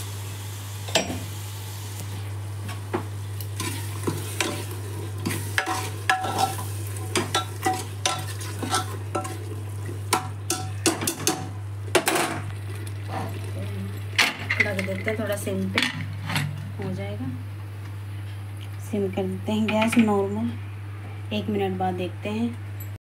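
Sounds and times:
curry sizzling: 0.0s - 16.6s.

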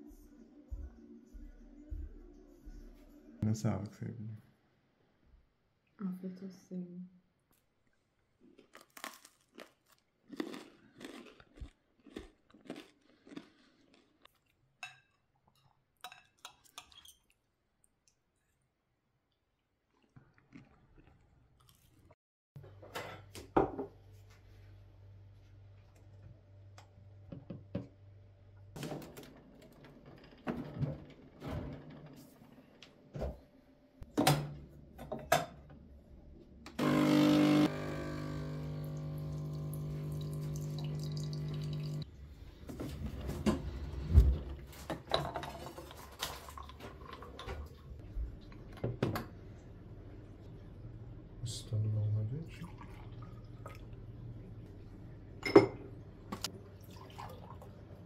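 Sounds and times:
espresso machine pump buzzing: 36.8s - 42.0s.

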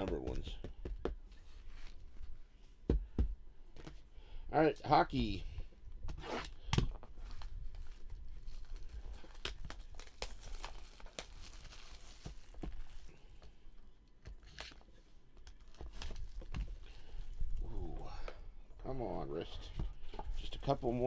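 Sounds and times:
plastic shrink-wrap tearing: 7.2s - 13.1s.

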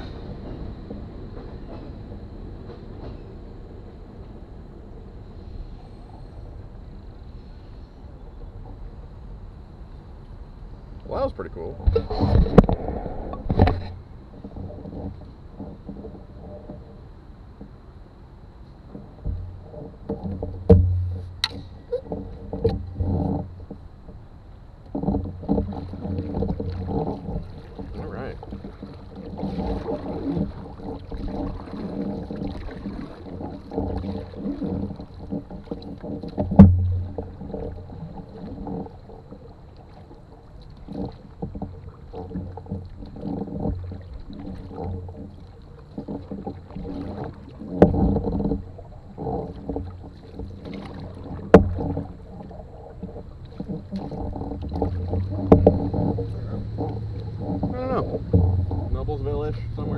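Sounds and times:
paddle splashing through water: 9.8s - 59.9s
sharp knocks on canoe: 18.9s - 23.8s, 24.9s - 38.9s, 45.9s - 59.9s.

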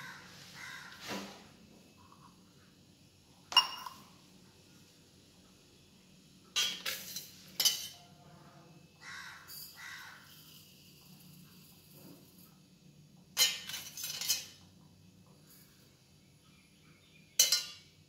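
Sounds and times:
steel vessels and spoon clinking: 3.5s - 4.1s, 6.5s - 8.1s, 13.4s - 14.6s, 17.3s - 18.0s
spoon scraping steel tumbler: 9.5s - 12.6s.

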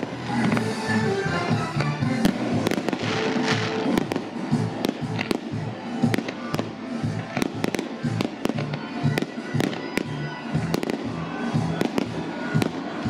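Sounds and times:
fireworks bangs: 0.0s - 13.0s
music playing: 0.0s - 13.0s.

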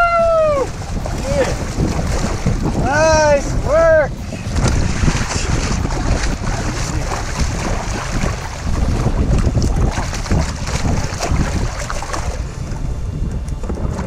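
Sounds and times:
water sloshing against kayak: 0.0s - 14.0s
wind buffeting microphone: 0.0s - 14.0s
fish splashing: 4.5s - 12.5s.

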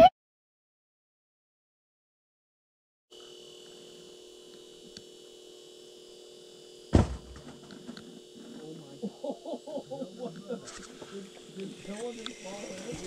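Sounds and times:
faint high whine: 3.1s - 13.0s
steady hum: 3.2s - 13.0s
loud thump: 6.9s - 7.7s.

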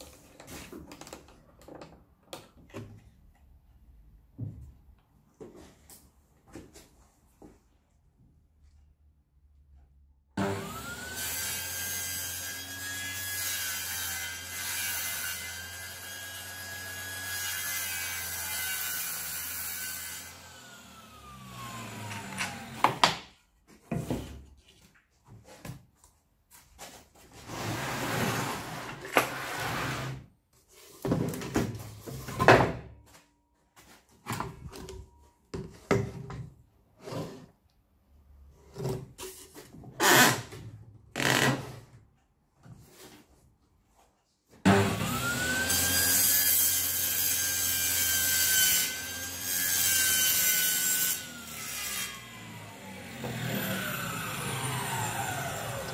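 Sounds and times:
table saw whining: 10.4s - 23.1s, 44.7s - 55.9s.

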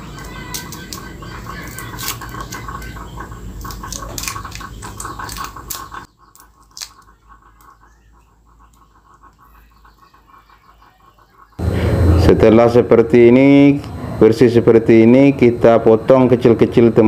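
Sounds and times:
knife scraping garlic skin: 0.4s - 2.9s, 3.6s - 7.1s.

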